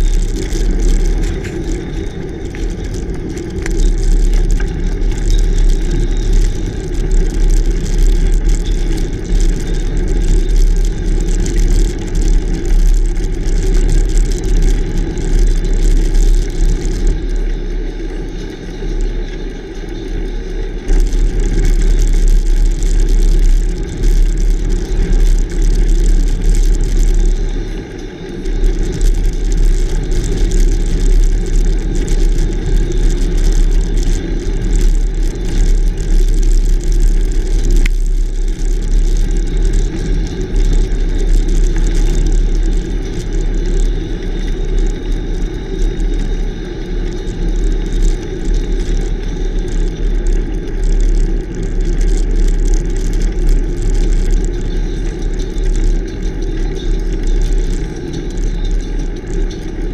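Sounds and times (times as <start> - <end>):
bike tyre noise and rattle: 0.0 - 59.9
wind rumble on microphone: 0.0 - 59.9.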